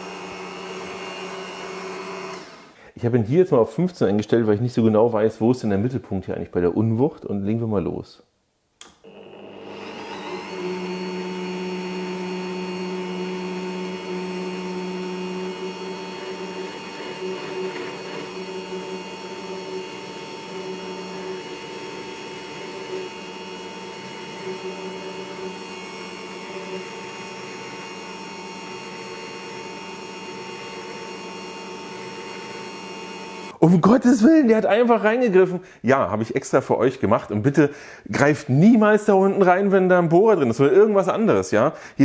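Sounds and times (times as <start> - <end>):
drill press motor whine: 0.0 - 2.8, 9.0 - 33.6.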